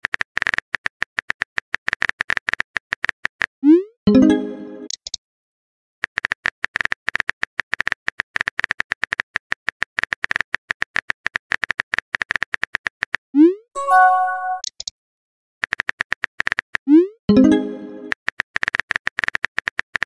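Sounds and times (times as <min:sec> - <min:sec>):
phone message sound: 0:04.1 - 0:04.9, 0:13.8 - 0:14.7, 0:17.3 - 0:18.1.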